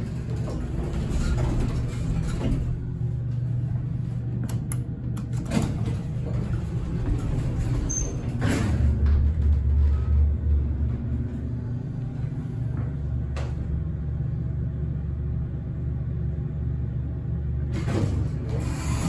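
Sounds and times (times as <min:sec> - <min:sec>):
elevator doors sliding: 0:00.0 - 0:13.8, 0:17.6 - 0:19.0
elevator low rumble: 0:00.0 - 0:19.0.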